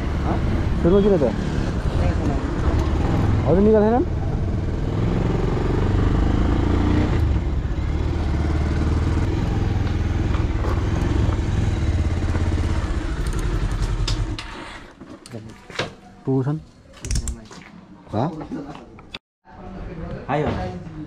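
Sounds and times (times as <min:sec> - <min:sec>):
motorcycle engine running: 0:02.0 - 0:14.4.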